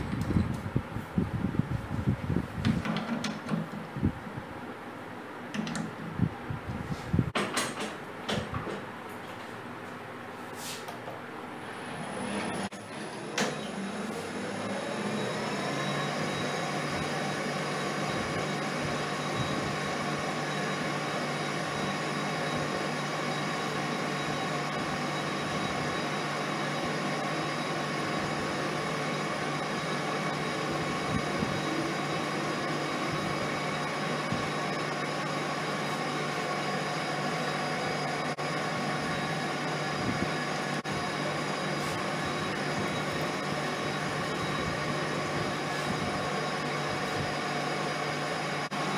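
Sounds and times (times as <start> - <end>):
lathe motor whining: 11.7 - 48.9.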